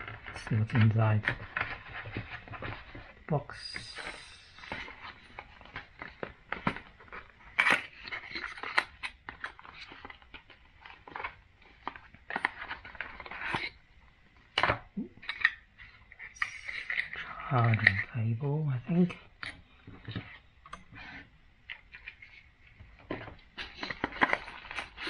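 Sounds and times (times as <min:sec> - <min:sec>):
cardboard scraping and rustling: 0:00.0 - 0:13.8.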